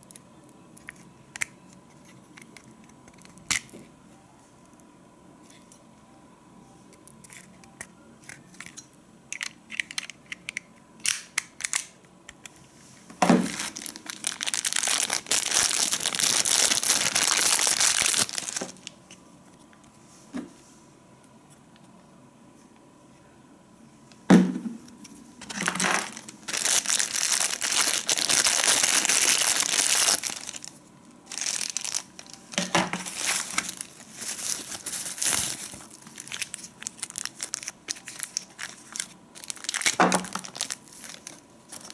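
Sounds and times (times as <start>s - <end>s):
plastic parts clicking: 7.2s - 12.5s
plastic bags crinkling: 13.2s - 19.0s, 25.4s - 41.9s.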